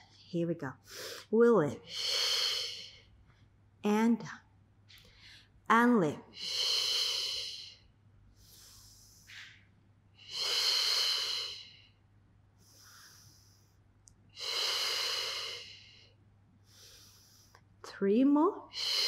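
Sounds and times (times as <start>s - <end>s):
woman inhaling: 6.4s - 9.6s, 10.2s - 17.7s.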